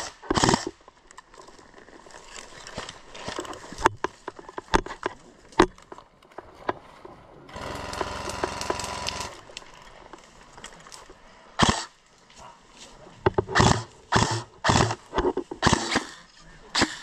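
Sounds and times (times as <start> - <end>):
airsoft gun full-auto burst: 7.5 - 9.4, 11.6 - 11.9, 13.6 - 15.0.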